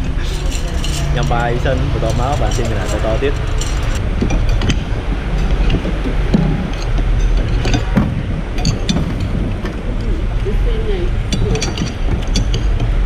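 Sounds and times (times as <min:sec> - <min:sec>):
low background rumble: 0:00.0 - 0:13.0
metal spoon clinking dishes: 0:00.1 - 0:04.8, 0:11.3 - 0:12.9.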